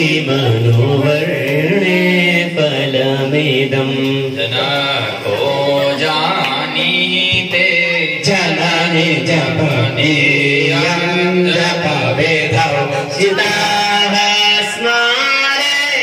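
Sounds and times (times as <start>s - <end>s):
person chanting a hymn: 0.0s - 16.0s.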